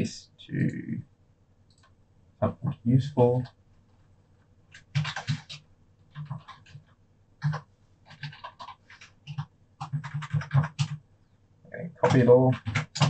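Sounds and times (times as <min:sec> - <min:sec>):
typing on computer keyboard: 0:04.7 - 0:11.0, 0:12.0 - 0:13.0.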